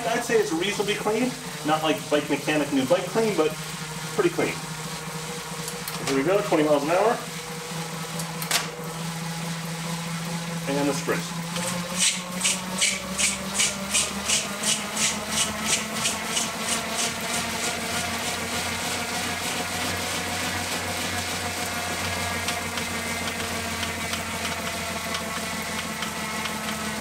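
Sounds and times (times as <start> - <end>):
bike drivetrain noise: 9.8 - 20.2.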